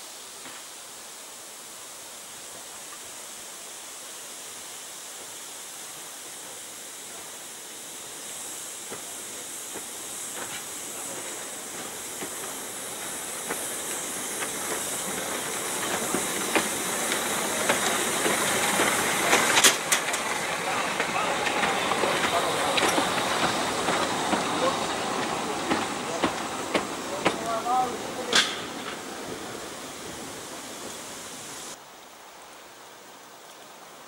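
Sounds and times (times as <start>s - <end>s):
steam hissing: 0.0s - 31.8s
wheels clicking on rails: 9.7s - 31.1s.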